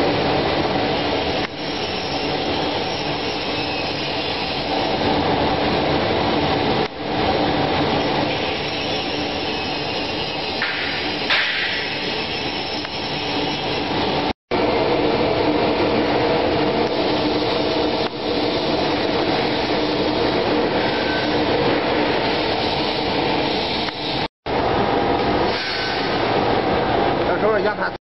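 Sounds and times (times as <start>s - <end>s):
gas burner roaring: 0.0s - 27.8s.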